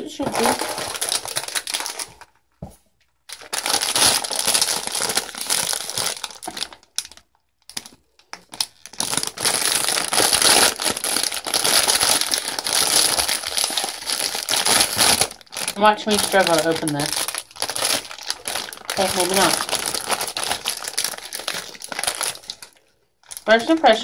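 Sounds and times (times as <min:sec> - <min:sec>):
plastic bag crinkling: 0:00.0 - 0:24.0.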